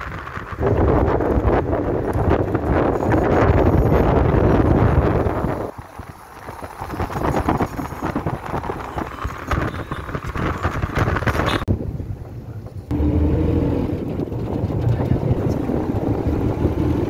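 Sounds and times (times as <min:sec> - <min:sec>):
road noise: 0:00.0 - 0:17.0
wind buffeting microphone: 0:00.0 - 0:17.0.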